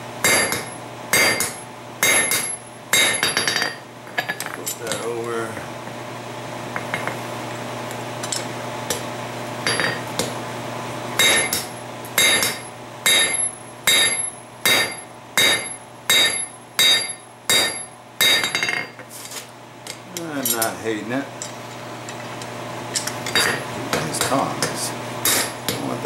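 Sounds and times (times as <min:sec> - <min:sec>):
hammer blows ringing on anvil: 0:00.2 - 0:03.7, 0:11.2 - 0:18.9.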